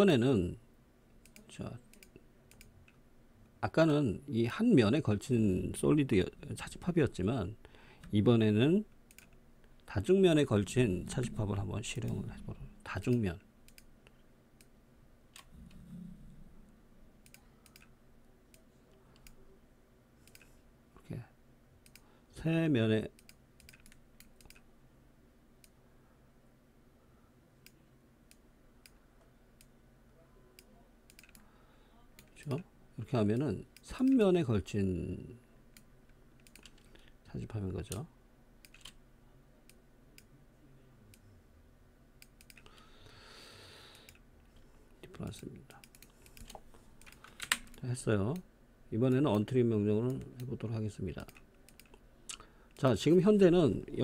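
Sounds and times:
computer mouse and keyboard clicks: 17.2s - 17.9s, 20.2s - 20.6s, 23.2s - 24.7s, 30.6s - 31.5s, 35.8s - 37.0s, 38.6s - 39.0s, 42.2s - 42.8s, 45.3s - 48.4s, 51.2s - 53.2s.

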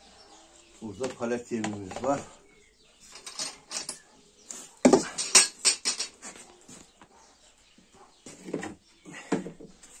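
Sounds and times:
plastic buckets knocking and scraping: 0.8s - 2.4s, 4.6s - 7.1s, 8.2s - 10.0s.

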